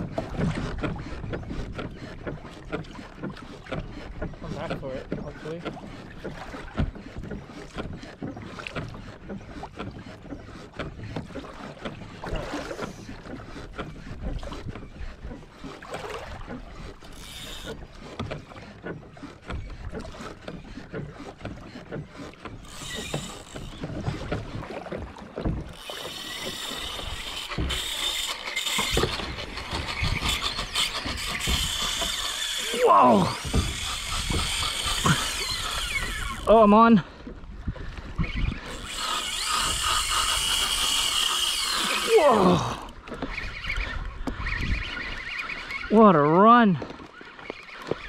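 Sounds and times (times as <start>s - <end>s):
knocks and clicks from boat: 0.0s - 48.0s
water sloshing against kayak hull: 0.0s - 48.0s
fishing reel drag buzzing: 16.8s - 18.7s, 22.2s - 24.2s, 25.7s - 36.6s, 38.2s - 46.0s.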